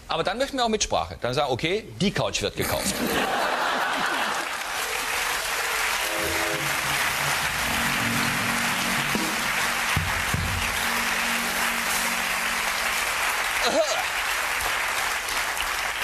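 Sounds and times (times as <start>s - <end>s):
audience applauding: 3.2s - 16.0s
music: 5.1s - 13.8s.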